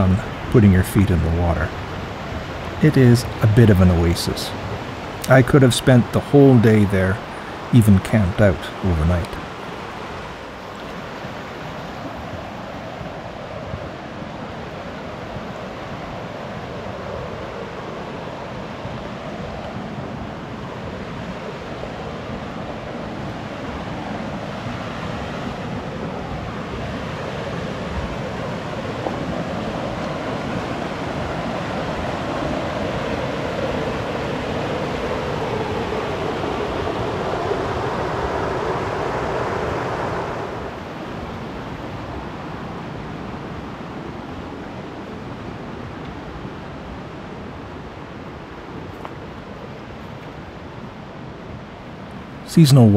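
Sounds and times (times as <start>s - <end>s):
water rushing over rocks: 0.0s - 16.8s.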